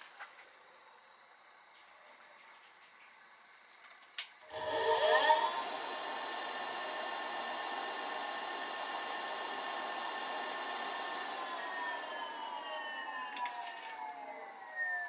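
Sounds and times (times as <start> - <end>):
electric hub motor whining: 4.5 - 15.0.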